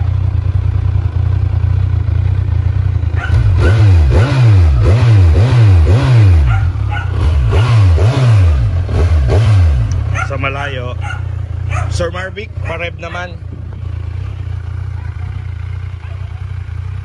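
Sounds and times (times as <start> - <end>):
motorcycle engine idling: 0.0 - 17.0
engine revving: 2.9 - 13.4.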